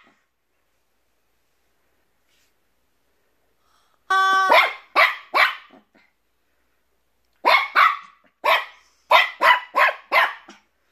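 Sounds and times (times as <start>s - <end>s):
puppy barking: 4.5s - 5.9s, 7.4s - 10.6s.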